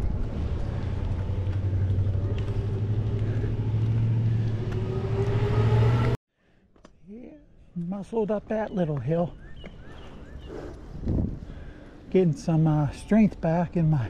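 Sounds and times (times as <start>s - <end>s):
wind rumbling on microphone: 0.0s - 5.4s, 9.8s - 12.0s
faint rising whine: 0.0s - 6.2s
steady low drone: 0.0s - 6.2s.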